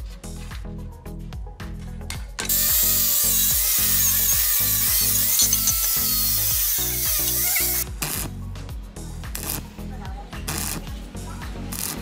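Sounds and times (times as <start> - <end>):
angle grinder grinding metal: 2.4 - 7.8.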